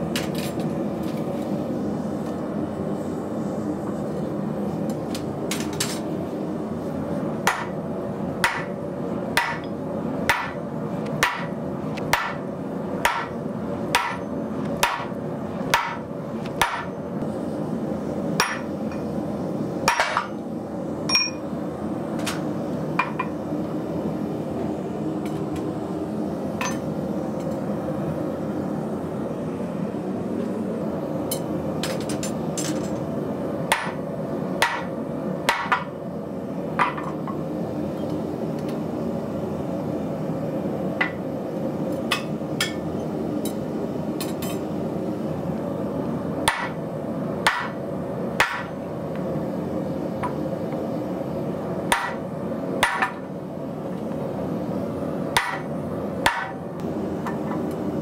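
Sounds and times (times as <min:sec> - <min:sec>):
hammer striking hot steel: 0:07.4 - 0:07.8, 0:08.4 - 0:10.6, 0:11.2 - 0:16.0, 0:16.6 - 0:17.0, 0:18.4 - 0:19.0, 0:19.8 - 0:20.4, 0:21.1 - 0:21.4, 0:33.7 - 0:34.0, 0:34.6 - 0:35.9, 0:46.4 - 0:46.8, 0:47.4 - 0:47.8, 0:48.4 - 0:48.8, 0:51.9 - 0:52.2, 0:52.8 - 0:53.3, 0:55.4 - 0:56.6.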